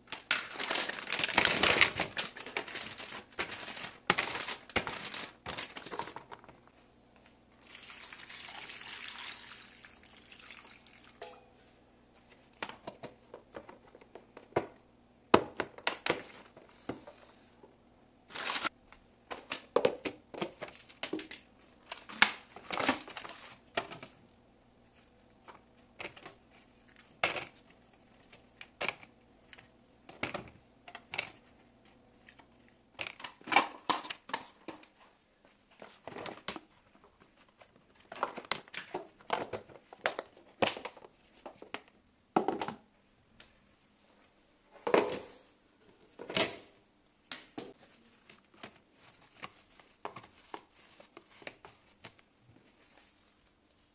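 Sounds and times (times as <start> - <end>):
plastic packaging crinkling: 0.0 - 6.6, 18.3 - 18.8.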